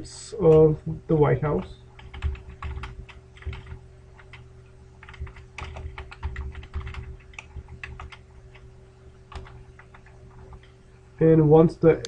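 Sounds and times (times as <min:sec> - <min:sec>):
faint steady hum: 0:00.0 - 0:12.0
keyboard typing: 0:01.6 - 0:04.4, 0:05.0 - 0:08.7, 0:09.3 - 0:10.7.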